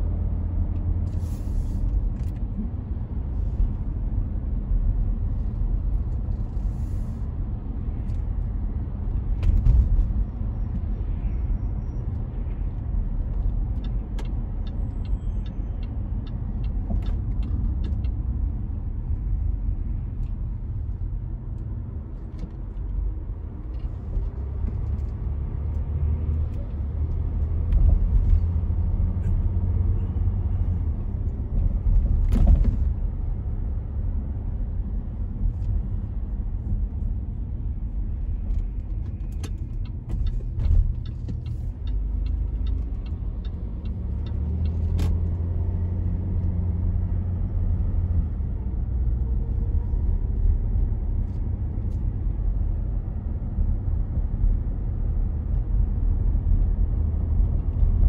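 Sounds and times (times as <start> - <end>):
car engine and road noise: 0.0 - 58.0
light ticks: 12.8 - 18.2, 38.5 - 45.3.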